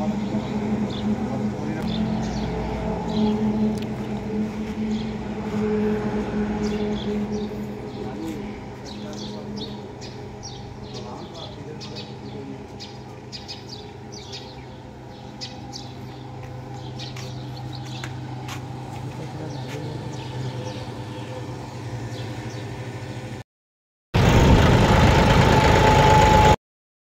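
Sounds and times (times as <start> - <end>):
birds chirping: 0.0 - 23.4
diesel tractor engine running: 0.0 - 23.4, 24.2 - 26.6
low mechanical hum: 0.0 - 23.4
steady whine: 0.0 - 23.4.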